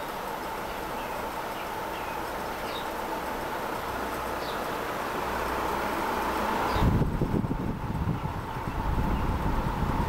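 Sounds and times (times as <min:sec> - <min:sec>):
ceiling fan whirring: 0:00.0 - 0:10.0.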